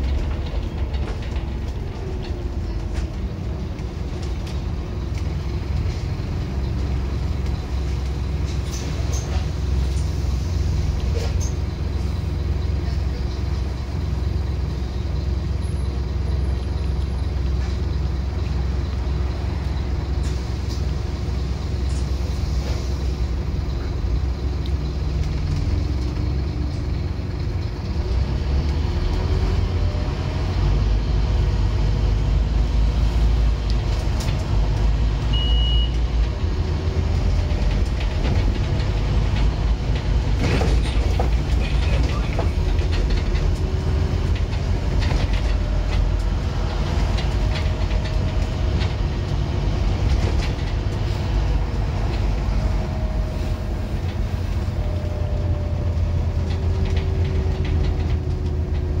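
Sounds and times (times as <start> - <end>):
bus diesel engine drone: 0.0 - 59.0
road and body noise: 0.0 - 59.0
short high beep: 35.3 - 36.0.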